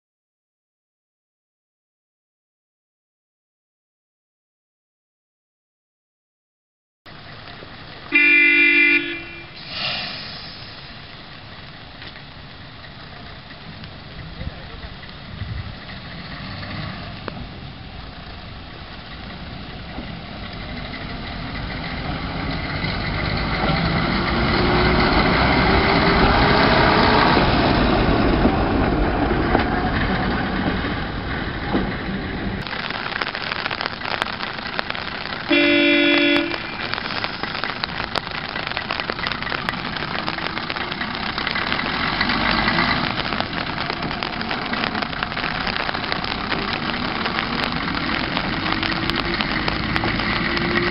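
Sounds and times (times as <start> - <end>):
diesel rail bus engine: 7.1 - 50.9
short horn toot: 8.1 - 10.4, 35.5 - 36.8.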